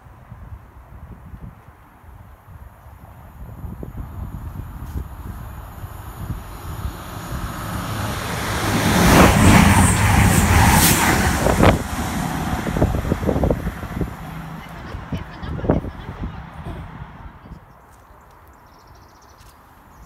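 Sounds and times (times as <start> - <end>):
diesel train passing: 4.0 - 17.5.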